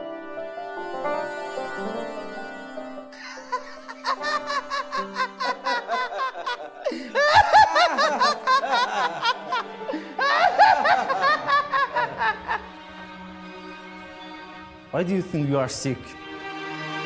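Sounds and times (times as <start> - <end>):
people laughing: 3.2 - 13.0.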